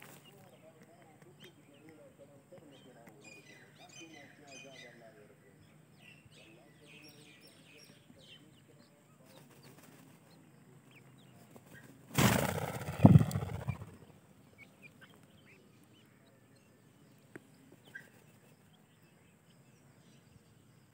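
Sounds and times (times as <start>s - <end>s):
chicks peeping: 8.4s - 16.4s.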